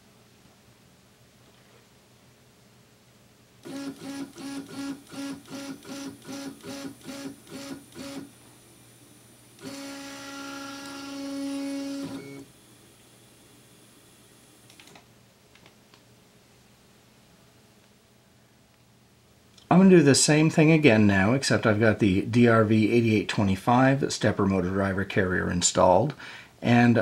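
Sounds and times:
stepper motor whining: 0:03.6 - 0:08.3, 0:09.6 - 0:12.4.

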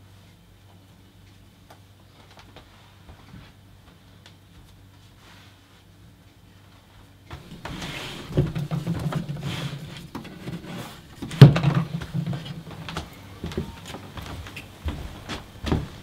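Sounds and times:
drawer banging shut: 0:07.4 - 0:12.7
drawer sliding open with rattle: 0:07.4 - 0:12.7.

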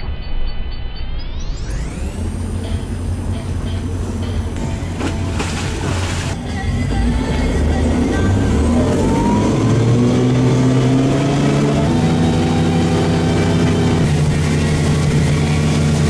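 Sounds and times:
boat engine running: 0:02.0 - 0:16.0.

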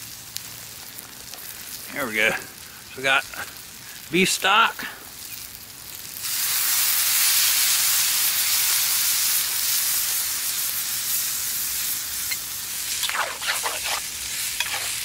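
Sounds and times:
stock sizzling in hot pan: 0:00.0 - 0:15.0
pan scraping: 0:12.9 - 0:15.0.

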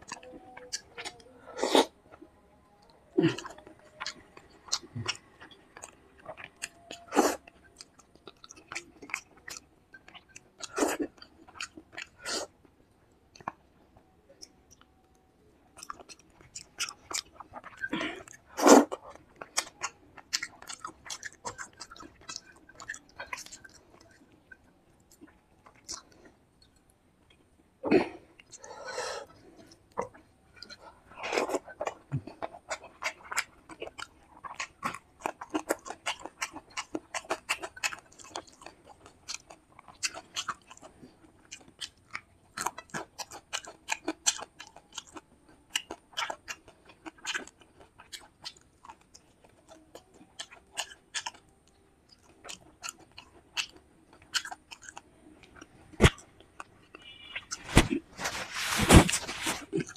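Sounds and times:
wet chewing smacks: 0:15.8 - 0:26.8, 0:29.6 - 0:59.9.

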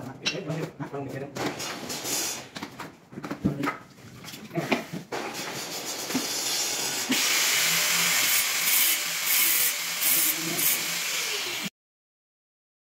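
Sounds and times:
power tool running: 0:05.3 - 0:11.7.

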